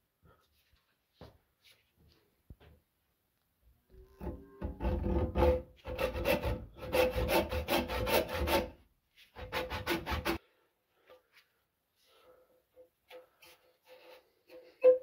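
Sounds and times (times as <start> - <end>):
hammer head scraping wooden handle: 4.2 - 8.6.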